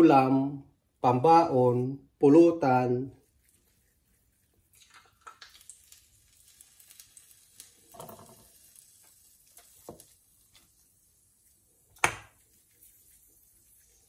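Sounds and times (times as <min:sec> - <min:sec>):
meatball sizzling in hot oil: 0:03.2 - 0:14.0.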